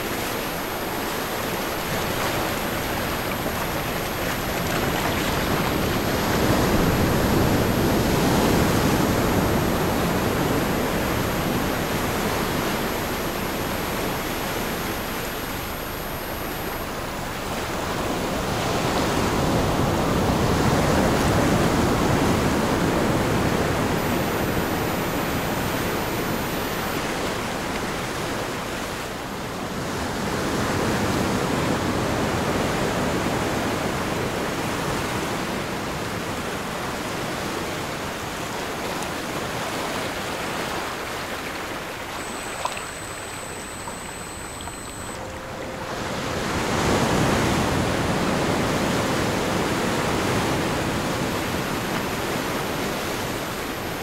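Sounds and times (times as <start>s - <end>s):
ocean waves surging: 0.0s - 29.0s, 29.7s - 54.0s
faint high tones: 41.6s - 54.0s.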